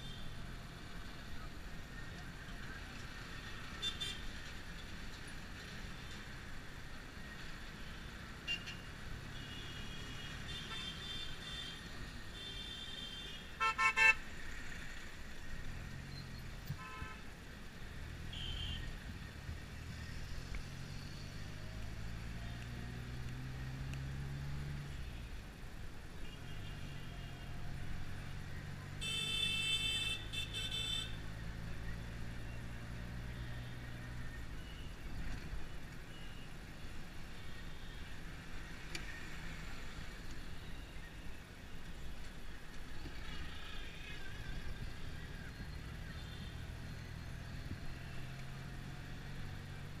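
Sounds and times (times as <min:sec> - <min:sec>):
vehicle horns tooting: 0:12.4 - 0:14.2, 0:16.8 - 0:17.2, 0:29.0 - 0:31.2.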